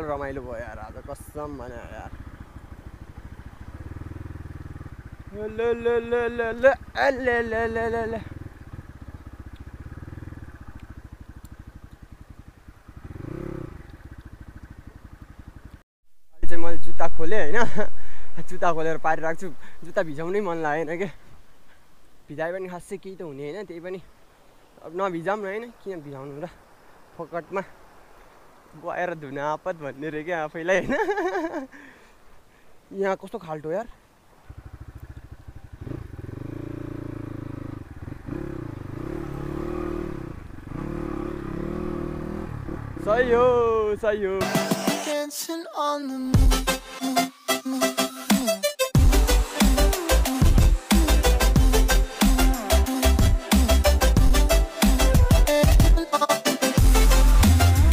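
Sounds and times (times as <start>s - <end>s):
dirt bike engine running: 0.0s - 15.8s, 34.2s - 44.5s, 49.0s - 56.0s.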